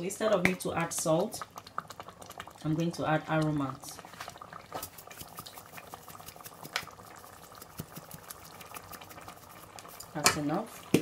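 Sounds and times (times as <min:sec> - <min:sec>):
thick sauce simmering in a pot: 0:00.1 - 0:11.0
bubbles popping: 0:00.3 - 0:09.6.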